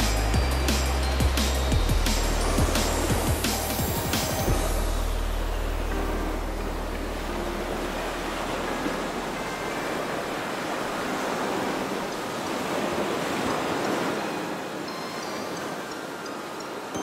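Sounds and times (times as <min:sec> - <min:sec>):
background music bass: 0:00.0 - 0:09.5
ocean waves: 0:00.0 - 0:17.0.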